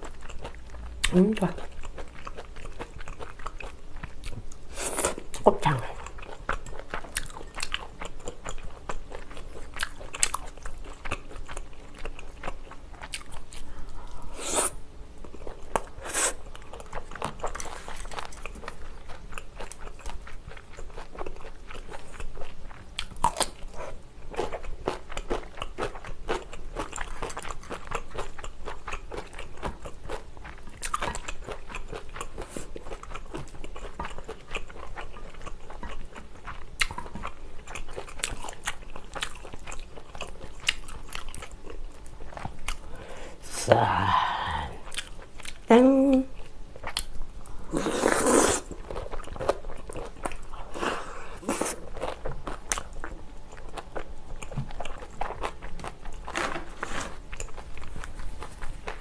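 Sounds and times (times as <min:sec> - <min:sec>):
wet chewing: 0:15.3 - 0:43.0, 0:44.8 - 0:45.7.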